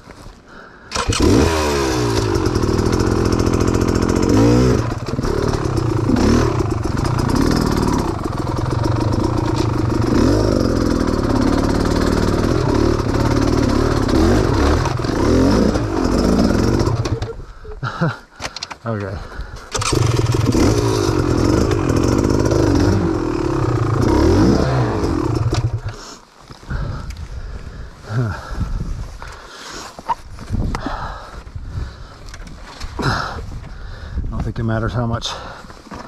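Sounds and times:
dirt bike engine revving: 0:00.9 - 0:17.3, 0:19.7 - 0:26.0.

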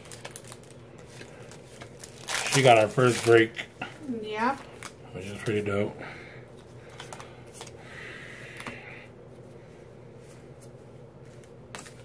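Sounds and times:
soft rustle of cards: 0:00.0 - 0:03.6, 0:08.5 - 0:12.0
faint steady hum: 0:00.0 - 0:12.0.

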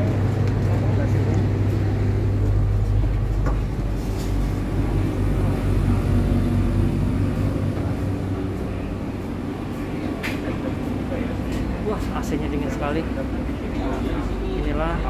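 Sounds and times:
diesel train humming: 0:00.0 - 0:15.0.

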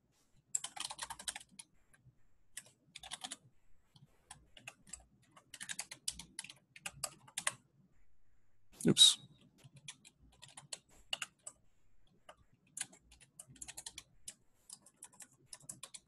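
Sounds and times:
typing on computer keyboard: 0:00.5 - 0:01.7, 0:02.5 - 0:07.7, 0:09.6 - 0:16.0.

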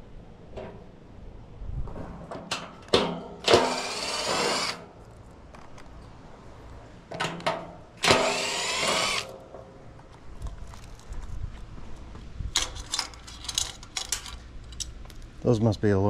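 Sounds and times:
impact driver spinning: 0:03.5 - 0:04.8, 0:08.0 - 0:09.3.

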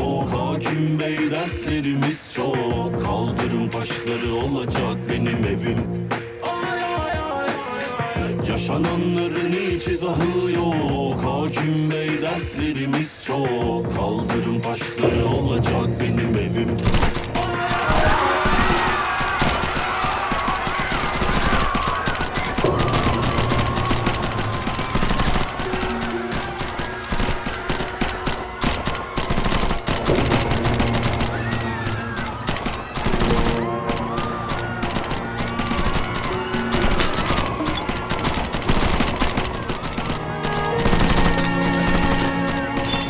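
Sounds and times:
dramatic music score: 0:13.5 - 0:43.0
rapid automatic gunfire: 0:16.8 - 0:43.0.

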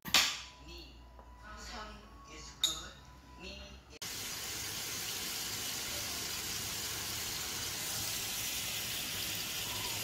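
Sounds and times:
water boiling in a pot: 0:04.0 - 0:10.0.

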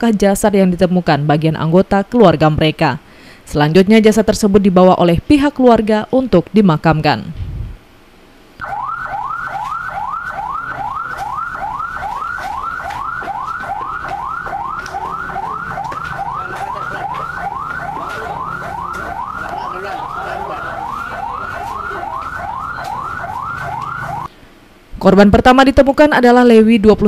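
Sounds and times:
emergency siren yelping: 0:08.6 - 0:24.3.

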